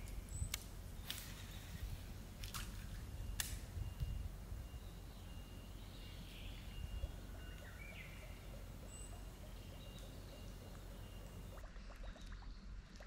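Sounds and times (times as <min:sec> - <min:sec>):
bird calling with thin notes: 0:00.0 - 0:13.0.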